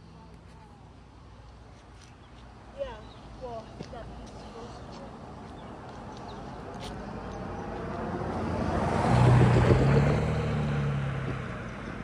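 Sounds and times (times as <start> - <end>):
vehicle passing by: 4.4 - 12.0.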